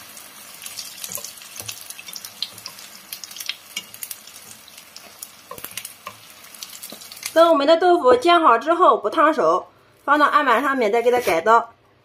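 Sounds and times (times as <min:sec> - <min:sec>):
oil sizzling in frying pan: 0:00.0 - 0:07.5.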